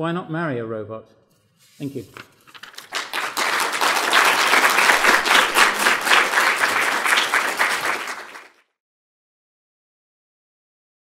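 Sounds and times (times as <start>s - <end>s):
audience applause: 2.6s - 8.6s.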